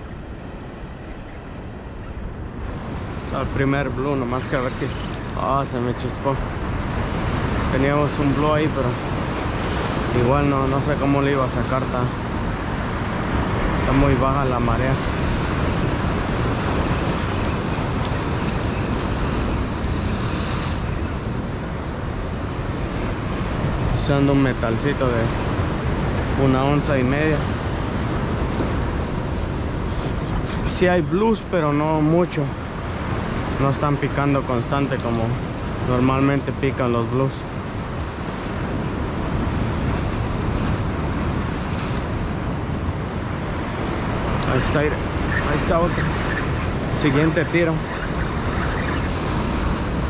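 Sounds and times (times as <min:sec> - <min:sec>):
ocean surf breaking over rocks: 0:00.0 - 0:50.0
wind buffeting microphone: 0:00.0 - 0:50.0
surf breaking over rocks: 0:30.4 - 0:37.8, 0:38.5 - 0:50.0.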